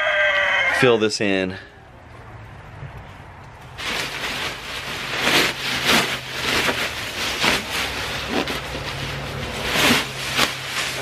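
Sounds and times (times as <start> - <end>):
plastic bag of leaves rustling: 3.8 - 11.0.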